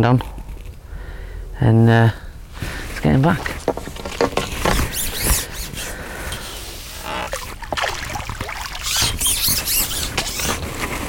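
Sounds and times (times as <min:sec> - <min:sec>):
water splashing and sloshing: 0:02.5 - 0:10.8
fish splashing: 0:02.7 - 0:10.4.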